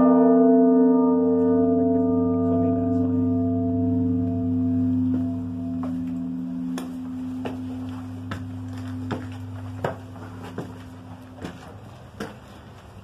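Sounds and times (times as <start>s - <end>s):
church bell hum: 0.0s - 12.0s
footsteps on stone stairs: 4.3s - 13.0s.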